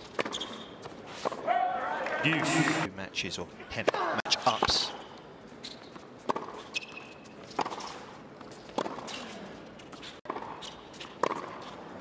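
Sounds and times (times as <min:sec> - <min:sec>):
tennis ball hit with rackets: 0:06.3 - 0:06.6, 0:08.7 - 0:09.2, 0:10.3 - 0:11.8.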